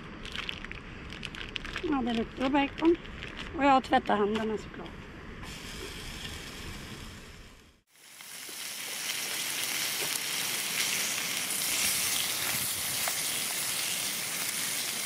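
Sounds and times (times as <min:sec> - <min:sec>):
food sizzling in a frying pan: 0:07.9 - 0:15.0.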